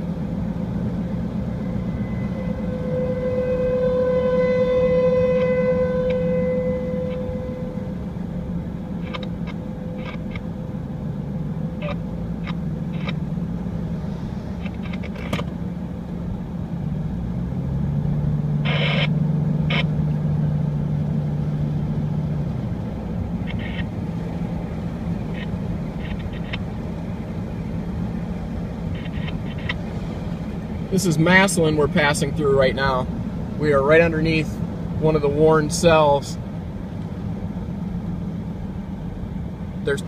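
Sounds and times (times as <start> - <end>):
car engine and road noise: 0.0 - 40.0
warning siren tone: 1.3 - 10.8, 11.7 - 13.3, 18.6 - 20.2, 23.3 - 31.1.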